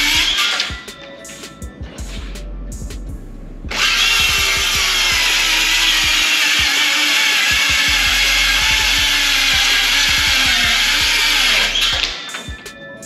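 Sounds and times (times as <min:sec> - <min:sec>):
circular saw cutting wood: 0:00.0 - 0:00.7, 0:03.7 - 0:12.4.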